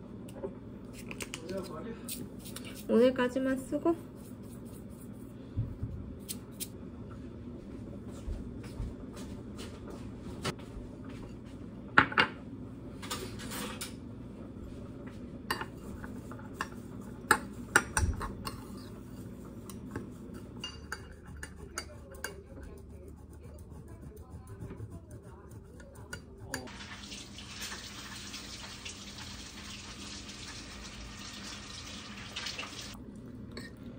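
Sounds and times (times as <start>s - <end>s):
metal spoon scraping ceramic bowl: 19.7s - 26.7s.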